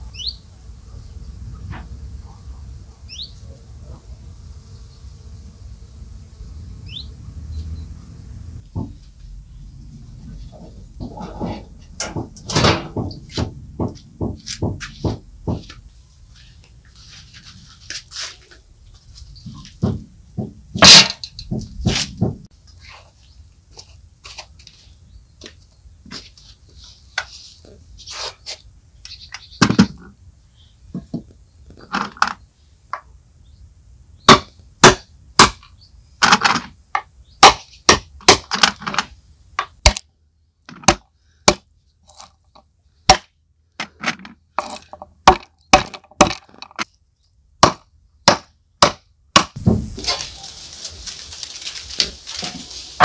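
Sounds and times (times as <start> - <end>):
knocks on hard surface: 12.1 - 15.8.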